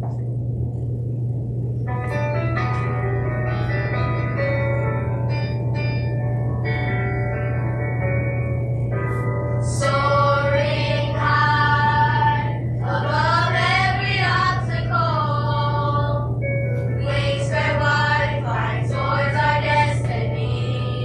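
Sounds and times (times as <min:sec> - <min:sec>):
steady low hum: 0:00.0 - 0:21.0
children's chorus singing: 0:09.6 - 0:16.3, 0:17.0 - 0:21.0.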